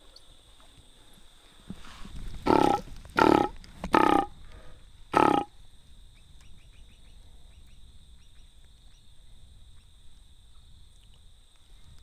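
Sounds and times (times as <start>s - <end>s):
high-pitched insect trill: 2.0s - 12.0s
deep croak: 2.4s - 4.4s, 5.1s - 5.6s.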